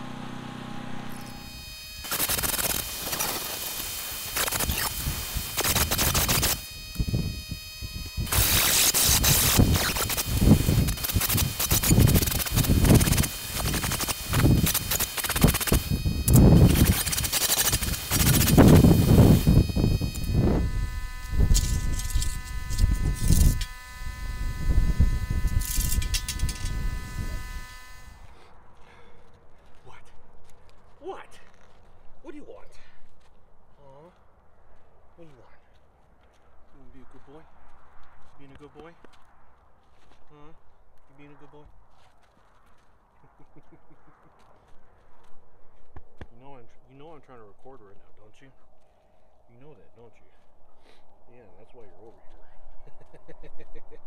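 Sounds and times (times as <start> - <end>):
angle grinder grinding steel: 0.0 - 28.3
steady buzzing hum: 0.0 - 28.6.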